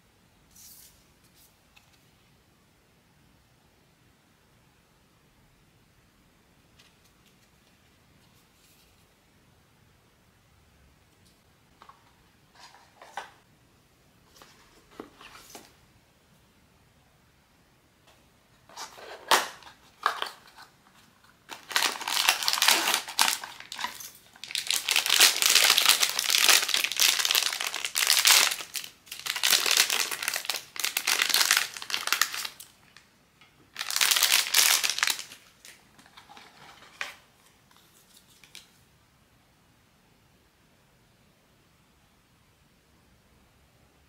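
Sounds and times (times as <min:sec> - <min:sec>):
packaging crinkling: 0:18.7 - 0:33.0, 0:33.7 - 0:37.2.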